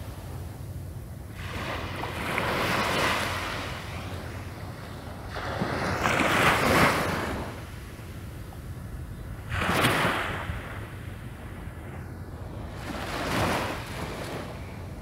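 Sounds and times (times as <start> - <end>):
wind rumbling on microphone: 0.0 - 15.0
small waves breaking on beach: 1.3 - 7.8, 9.4 - 11.1, 12.5 - 14.8.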